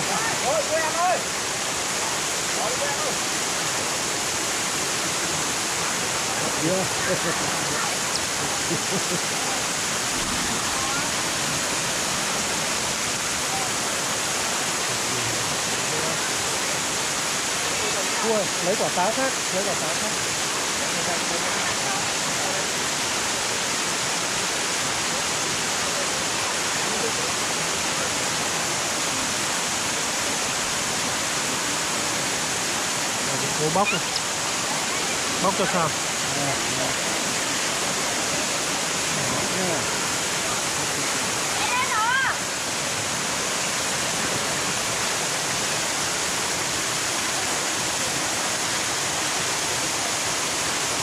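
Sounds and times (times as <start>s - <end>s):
waterfall roaring: 0.0s - 51.0s.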